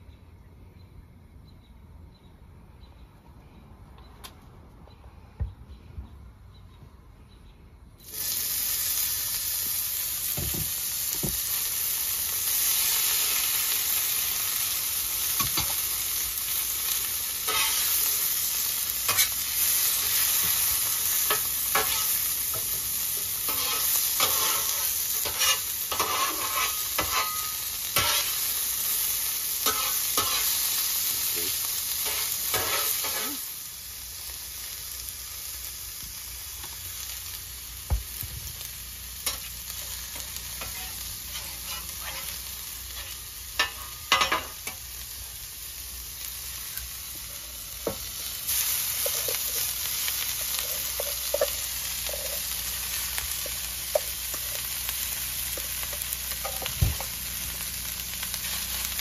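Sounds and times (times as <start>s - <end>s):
vegetables sizzling on a griddle: 8.0s - 59.0s
metal spatula scraping and tapping: 17.5s - 17.9s, 19.1s - 19.4s, 21.3s - 22.7s, 23.5s - 28.4s, 29.6s - 30.5s, 32.0s - 33.3s, 39.2s - 39.5s, 40.1s - 44.8s, 50.5s - 52.4s.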